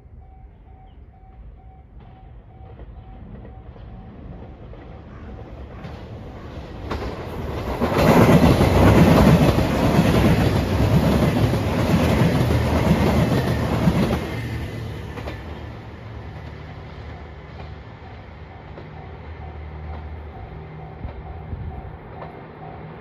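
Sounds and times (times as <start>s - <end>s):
train passing at speed: 0.0s - 23.0s.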